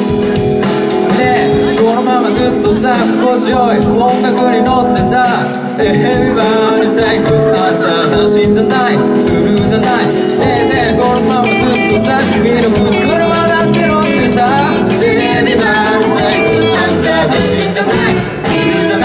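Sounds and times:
drums: 0:00.0 - 0:19.0
electric guitars: 0:00.0 - 0:19.0
keyboard: 0:00.0 - 0:19.0
man singing: 0:00.0 - 0:19.0.

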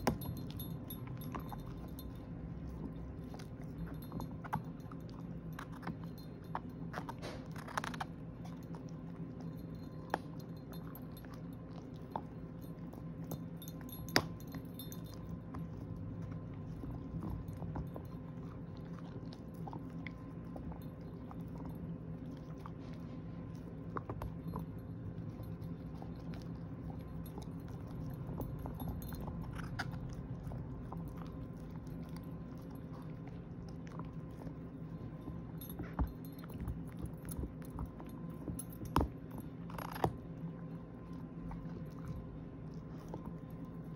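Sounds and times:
dog chewing hard treat: 0:00.0 - 0:43.9.

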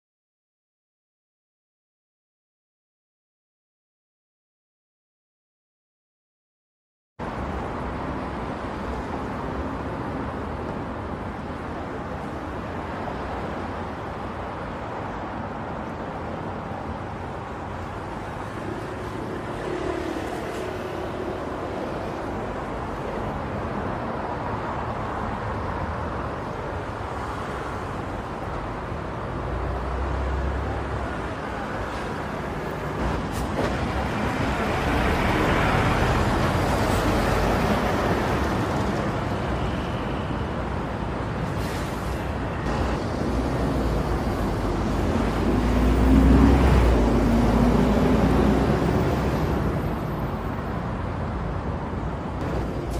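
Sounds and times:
road traffic passing: 0:07.2 - 0:52.9
car passing close: 0:41.6 - 0:50.4.

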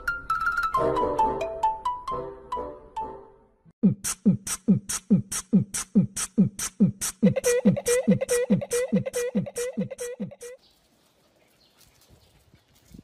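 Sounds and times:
fast drum and hi-hat beat: 0:03.8 - 0:10.6.

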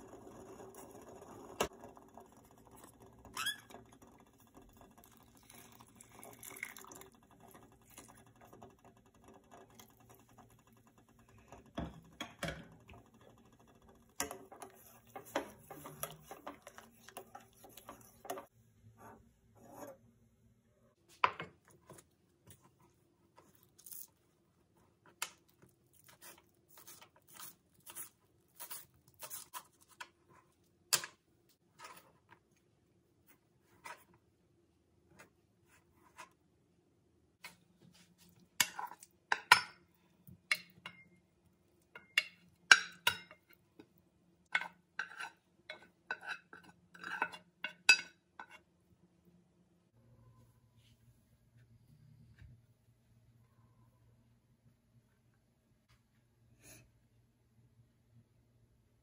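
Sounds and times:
soup simmering in a pot: 0:00.0 - 0:18.6
spatula stirring and knocking pot: 0:00.0 - 0:18.6, 0:37.4 - 0:43.9, 0:44.5 - 0:48.7.

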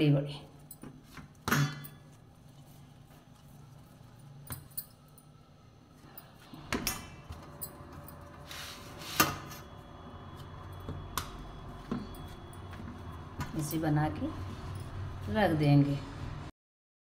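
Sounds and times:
glass bangles clinking: 0:03.6 - 0:05.5.

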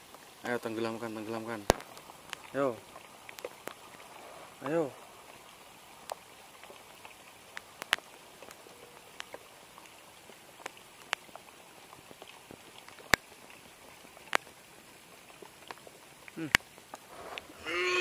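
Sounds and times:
light rain pattering: 0:00.0 - 0:18.0.

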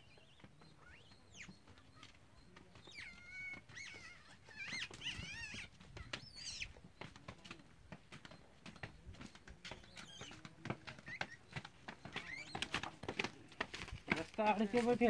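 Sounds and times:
infant monkey squealing whimpers: 0:02.9 - 0:05.7.

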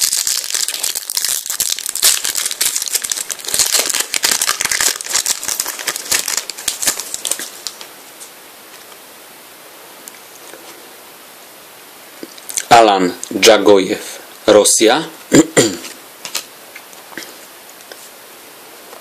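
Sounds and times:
foil packet crinkling: 0:00.0 - 0:07.9.

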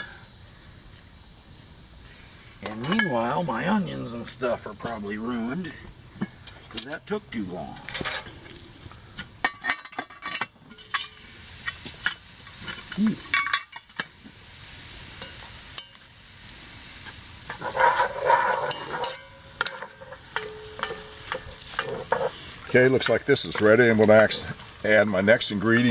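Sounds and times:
food sizzling in a pot: 0:00.0 - 0:25.9
wooden spoon scraping pot: 0:17.5 - 0:22.6.

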